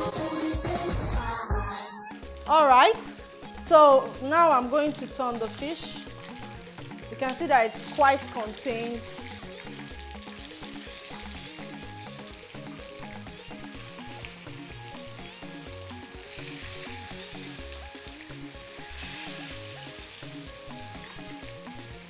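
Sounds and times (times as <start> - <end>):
background music: 0.0 - 22.0
fish sizzling in hot oil: 1.8 - 22.0.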